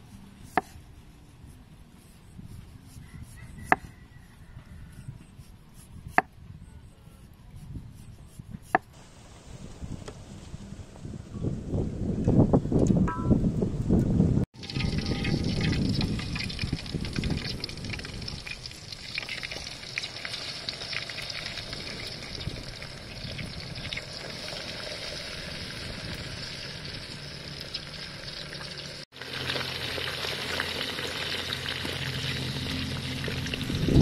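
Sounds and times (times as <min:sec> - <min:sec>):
food sizzling in hot oil: 0:14.6 - 0:34.0.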